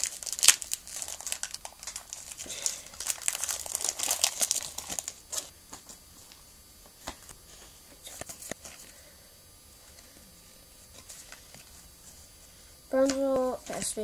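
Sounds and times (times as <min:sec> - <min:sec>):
foil wrapper crinkling and tearing: 0:00.0 - 0:05.5.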